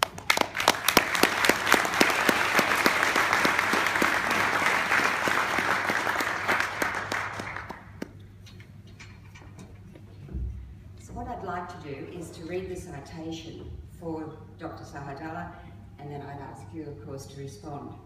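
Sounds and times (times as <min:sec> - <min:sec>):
audience applauding: 0:00.0 - 0:08.1
close steady hand clapping: 0:00.0 - 0:08.2.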